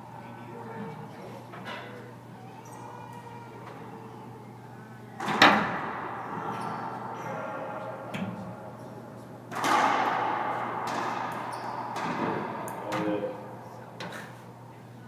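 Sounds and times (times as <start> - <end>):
racquetball hits echoing: 5.2 - 14.7.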